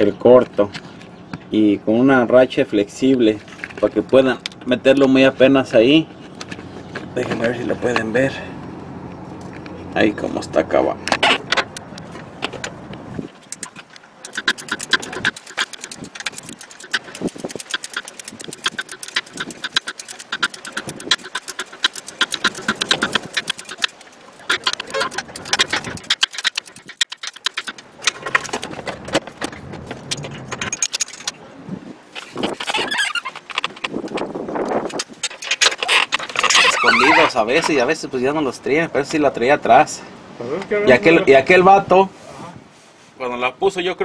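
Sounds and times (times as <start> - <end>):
ratchet clicking: 13.5 - 28.8, 30.0 - 31.3.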